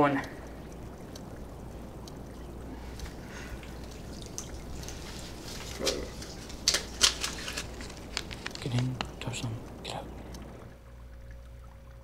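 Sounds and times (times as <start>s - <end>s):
low room hum: 0.0s - 12.0s
water pouring into mug: 0.3s - 12.0s.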